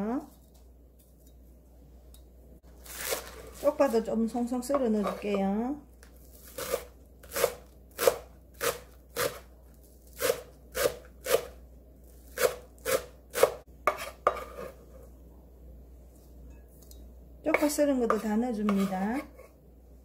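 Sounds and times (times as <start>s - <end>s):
knife chopping on wooden board: 6.5s - 9.4s, 10.2s - 11.5s, 12.3s - 14.7s.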